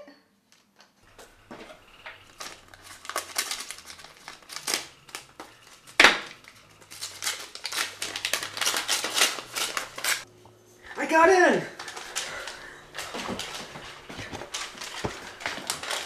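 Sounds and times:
paper rustling: 1.1s - 10.2s, 11.7s - 16.0s
envelope tearing open: 2.2s - 10.2s, 11.8s - 16.0s.

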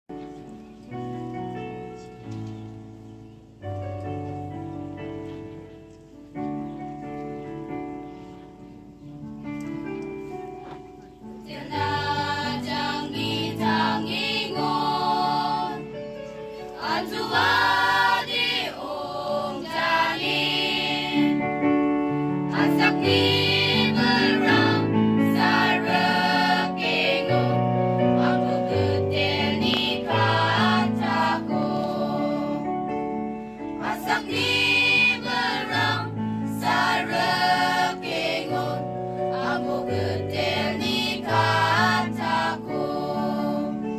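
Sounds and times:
choir singing: 11.4s - 33.0s, 33.6s - 43.9s.

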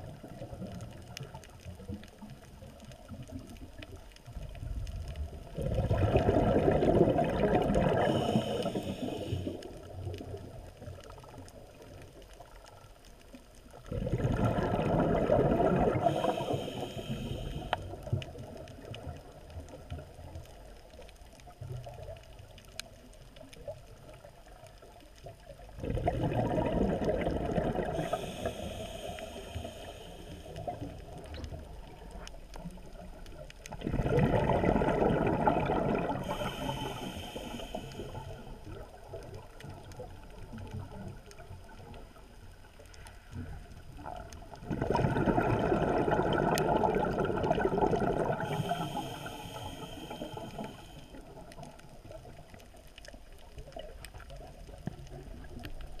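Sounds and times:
faint watery background: 0.0s - 56.0s
exhaled bubbles rushing: 5.4s - 10.6s, 13.8s - 16.8s, 25.7s - 32.1s, 33.7s - 36.8s, 43.9s - 49.3s
hissing breath in: 7.9s - 9.8s, 15.8s - 18.1s, 27.8s - 31.0s, 36.1s - 38.6s, 48.3s - 51.3s.

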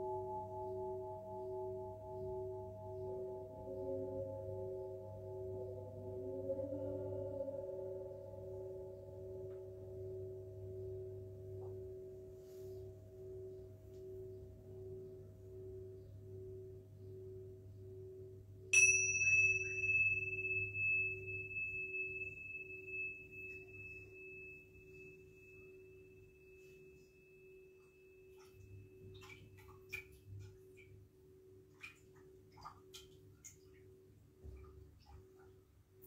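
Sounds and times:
singing bowl ringing: 0.0s - 29.7s
struck metal instrument ringing: 18.7s - 26.6s.

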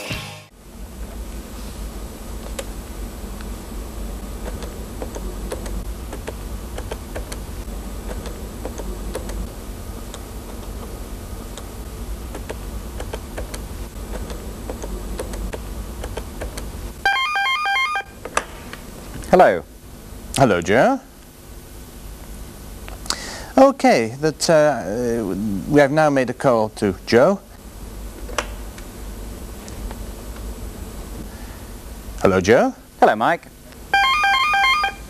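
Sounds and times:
electronic telephone ringer trilling: 17.1s - 18.2s, 34.0s - 35.0s.

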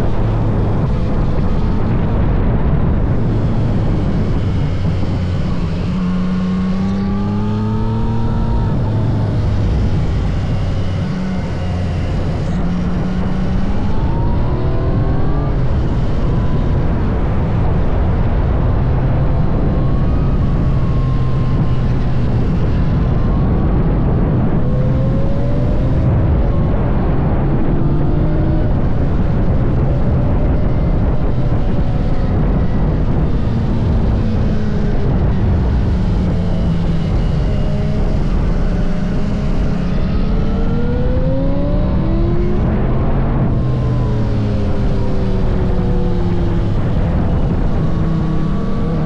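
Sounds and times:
motorcycle engine revving: 0.0s - 49.0s.

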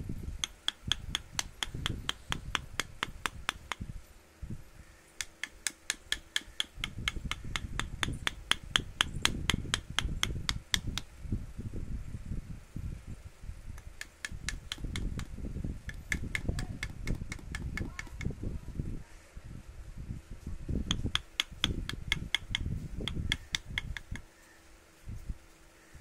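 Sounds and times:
hammer tapping chisel into wood: 0.4s - 3.8s, 5.2s - 11.1s, 13.8s - 18.3s, 20.9s - 24.3s.

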